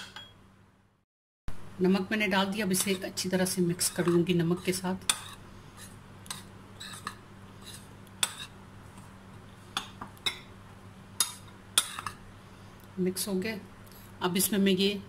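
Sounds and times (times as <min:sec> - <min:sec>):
spoon stirring in glass bowl: 0:03.7 - 0:09.1.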